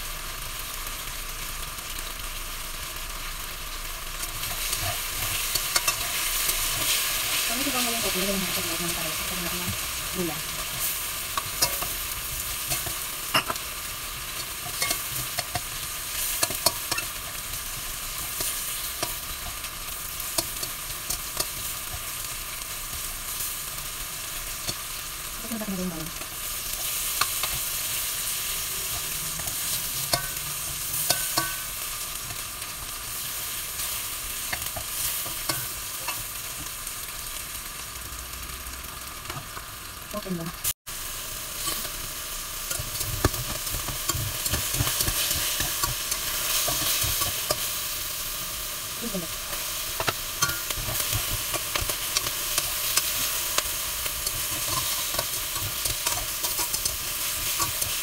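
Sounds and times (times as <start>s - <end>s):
tofu sizzling in oil: 0.0s - 58.0s
metal spatula scraping wok: 4.4s - 9.3s, 14.2s - 22.1s, 26.2s - 32.8s, 49.5s - 58.0s.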